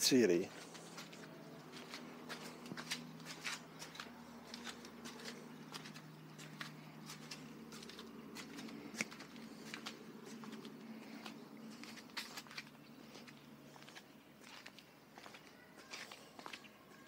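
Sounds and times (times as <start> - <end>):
steady low hum: 0.4 - 15.8
footsteps on asphalt: 0.5 - 17.0.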